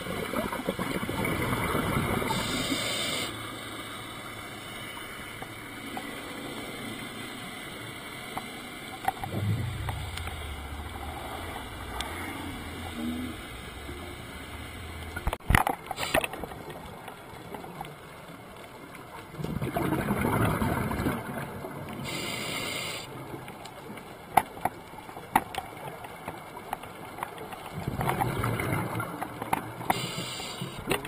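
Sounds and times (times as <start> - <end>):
underwater bubbling exhaled air: 0.0 - 3.2, 9.1 - 15.4, 19.4 - 23.3, 27.7 - 30.9
regulator hiss: 2.3 - 5.3, 22.0 - 23.1, 29.9 - 30.9.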